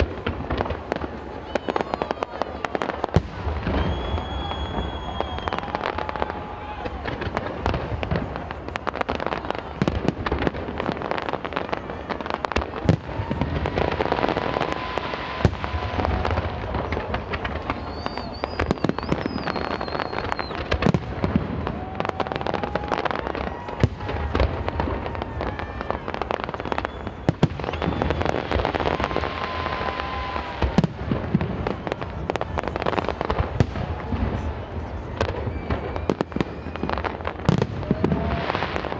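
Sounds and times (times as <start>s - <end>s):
fireworks bangs and crackles: 0.0s - 38.9s.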